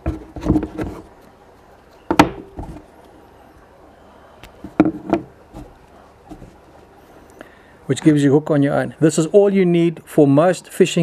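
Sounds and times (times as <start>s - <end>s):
light knocks and rustles: 4.6s - 6.6s.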